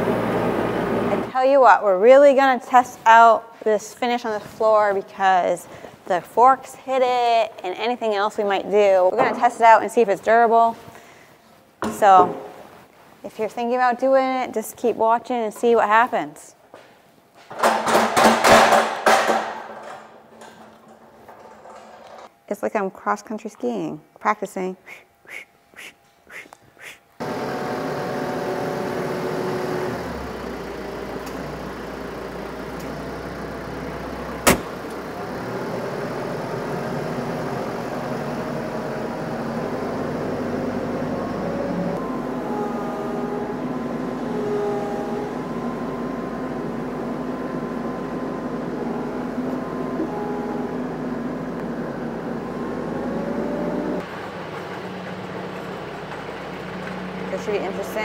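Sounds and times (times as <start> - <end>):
tractor engine running: 0.0 - 1.3, 27.2 - 58.0.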